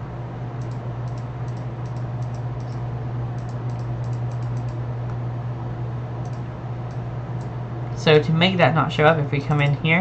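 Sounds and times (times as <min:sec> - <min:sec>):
steady low hum: 0:00.0 - 0:10.0
computer keyboard typing: 0:03.4 - 0:04.8.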